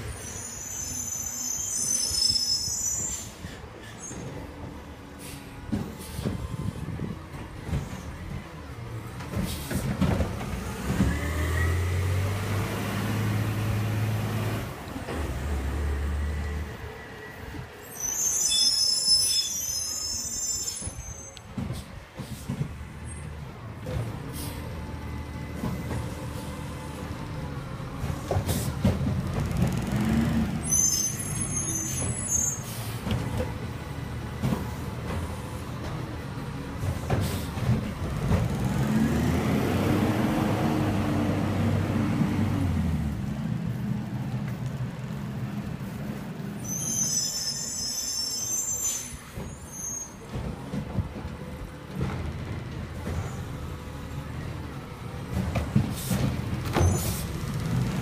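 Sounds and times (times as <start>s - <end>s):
diesel truck engine revving: 38.4s - 43.2s.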